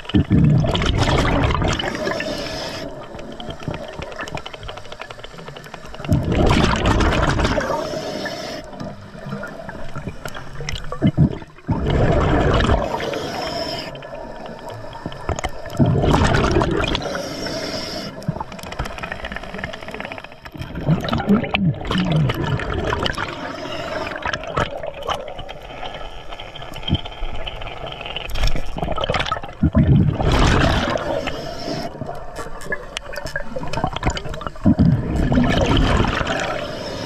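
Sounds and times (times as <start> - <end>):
exhaled bubbles gurgling underwater: 0.0 - 37.0
regulator hissing: 12.8 - 14.5.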